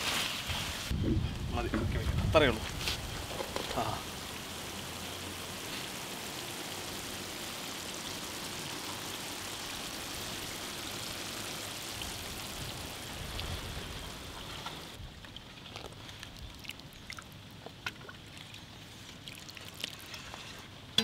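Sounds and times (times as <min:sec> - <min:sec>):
fish sizzling in a pan: 0:02.8 - 0:15.0.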